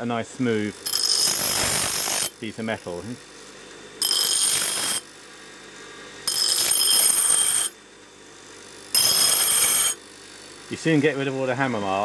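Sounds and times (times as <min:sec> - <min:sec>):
bench grinder grinding steel: 0:00.4 - 0:03.2, 0:04.0 - 0:05.2, 0:06.2 - 0:07.8, 0:08.6 - 0:10.9.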